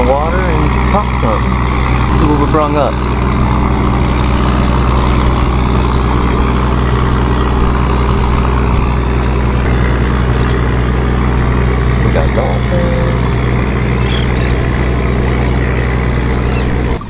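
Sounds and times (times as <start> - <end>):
outboard motor running: 0.0 - 17.0.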